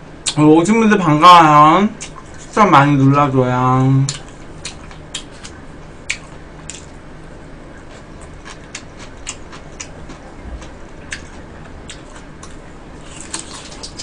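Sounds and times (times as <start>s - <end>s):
low room hum: 0.0s - 14.0s
wet chewing: 4.1s - 7.0s, 7.8s - 14.0s.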